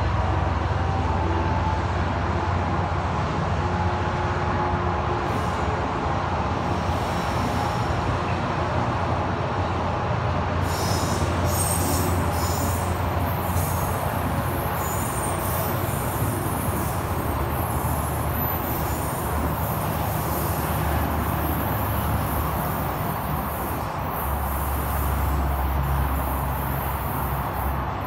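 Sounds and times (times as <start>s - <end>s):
train rumbling: 0.0s - 28.0s
high wheel squeals: 10.6s - 28.0s.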